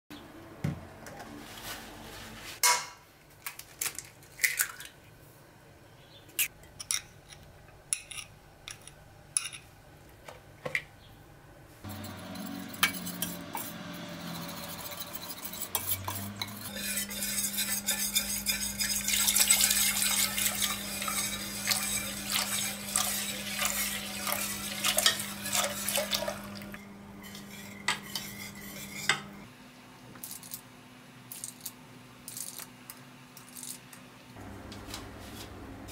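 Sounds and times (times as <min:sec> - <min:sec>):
steady low hum: 0:11.2 - 0:30.4
whisk beating in metal pot: 0:11.9 - 0:29.3.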